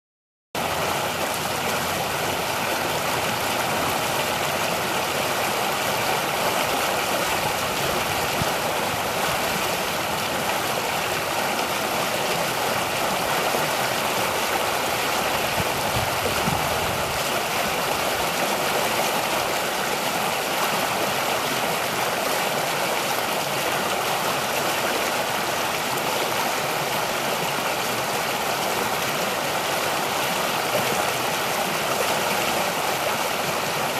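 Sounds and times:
creek water rushing over rocks: 0.6s - 33.9s.

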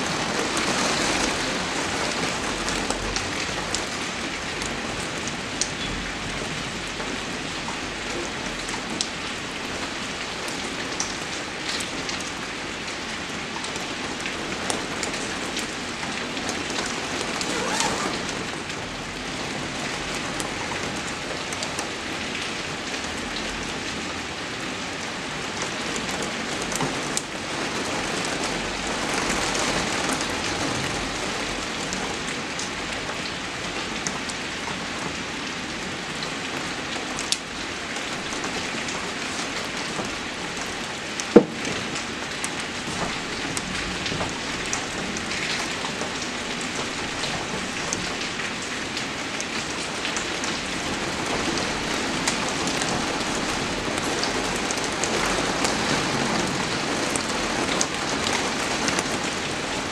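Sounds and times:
steady rain: 0.0s - 59.9s
rain drop hits: 38.1s - 48.8s.

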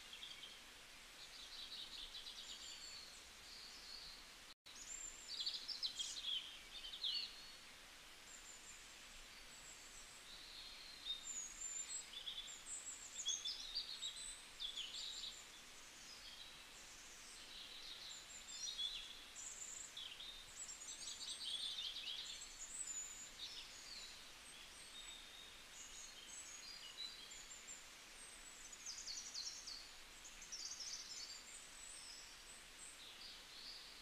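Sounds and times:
soft hiss: 0.0s - 34.0s.

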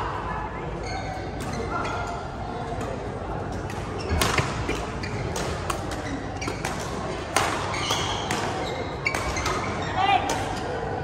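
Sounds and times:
hubbub of voices in hall: 0.0s - 11.0s
court shoes squeaking: 0.7s - 10.8s
racket striking shuttlecock: 4.2s - 9.7s.

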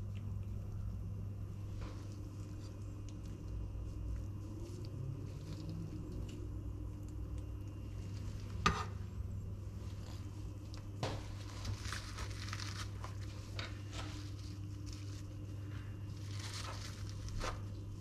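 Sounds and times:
low hum: 0.0s - 18.0s
tongs crinkling paper towel: 9.8s - 18.0s.

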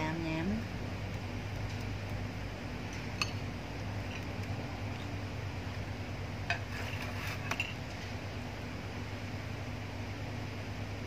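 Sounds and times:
steady low hum: 0.0s - 11.0s
metal spoon clinking on plate: 3.2s - 4.3s.

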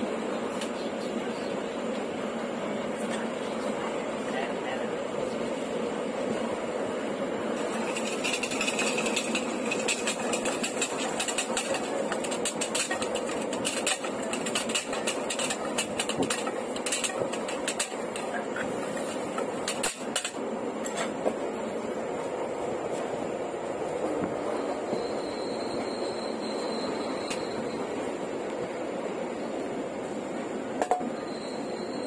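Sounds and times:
train coach noise: 0.0s - 32.0s
spoon clattering against steel tin: 7.6s - 18.5s.

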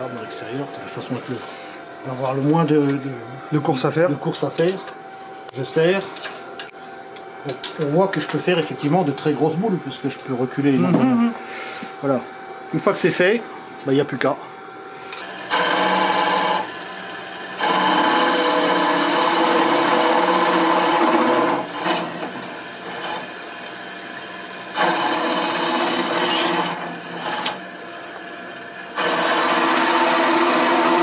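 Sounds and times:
wood lathe humming: 15.0s - 31.0s
cutter scraping wood: 17.6s - 23.4s, 24.8s - 27.6s, 29.0s - 31.0s.

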